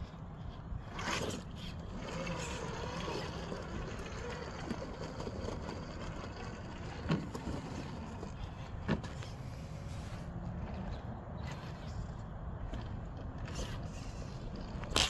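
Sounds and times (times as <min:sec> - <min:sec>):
rc car motor whirring: 0:00.8 - 0:10.9.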